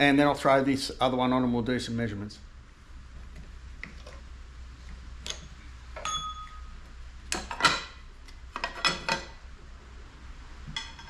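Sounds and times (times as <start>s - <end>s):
short metallic ring: 6.0s - 6.7s.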